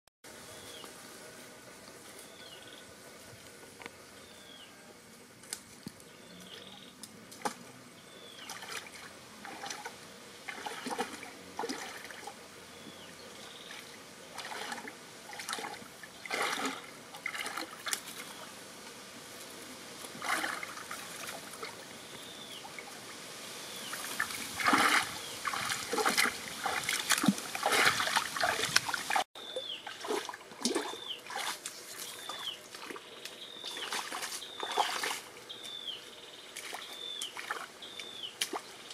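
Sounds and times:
stream water splashing: 7.4s - 18.5s, 20.0s - 38.9s.

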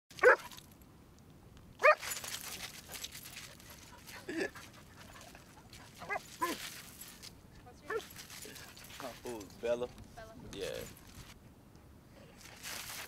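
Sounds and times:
dog barking: 0.2s - 0.5s, 1.8s - 2.0s.

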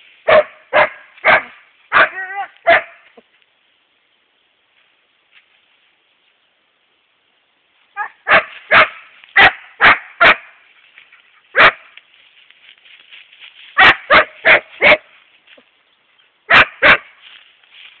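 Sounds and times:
dog barking: 0.2s - 3.0s, 8.0s - 10.6s, 11.5s - 11.9s, 13.8s - 15.1s, 16.5s - 17.2s.

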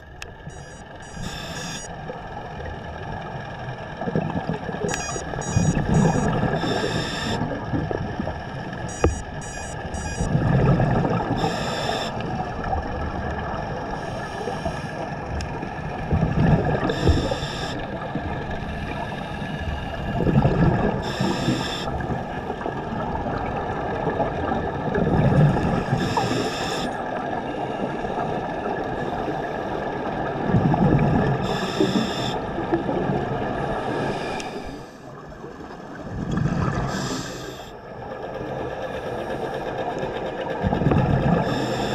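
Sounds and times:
regulator hiss: 0.5s - 1.9s, 4.9s - 7.4s, 11.4s - 12.2s, 16.9s - 17.8s.

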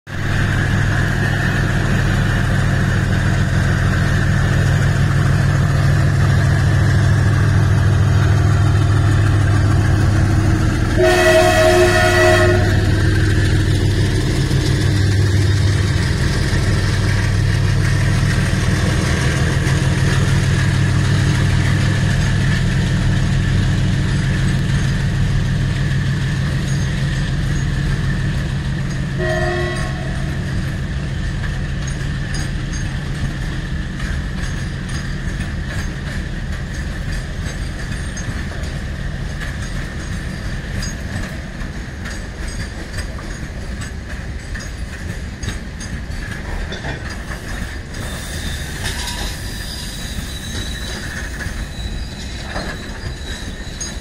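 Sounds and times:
freight train rumbling past: 0.1s - 54.0s
train horn: 10.9s - 13.0s, 29.2s - 30.4s.

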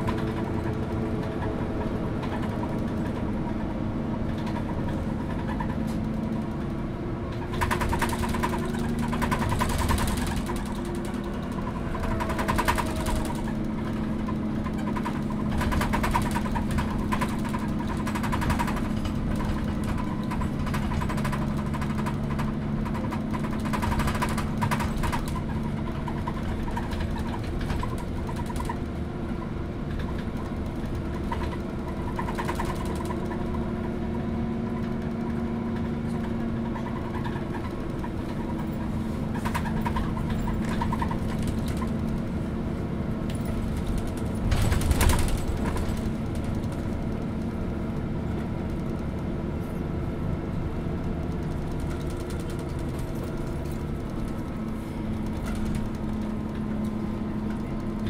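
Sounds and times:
bus bodywork rattling: 0.0s - 58.0s
diesel engine drone: 0.0s - 58.0s
jolt and rattle: 7.4s - 28.8s, 43.3s - 47.3s.

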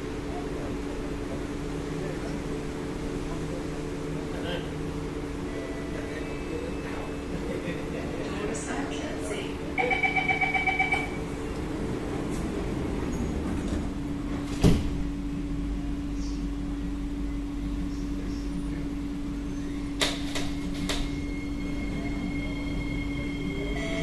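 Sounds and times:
train sliding door shutting: 11.6s - 15.1s, 19.6s - 21.4s.

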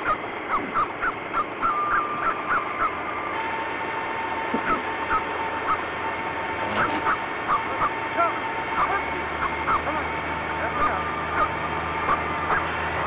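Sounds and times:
thin steady whine: 0.0s - 13.0s
small dog yapping: 6.7s - 7.9s.

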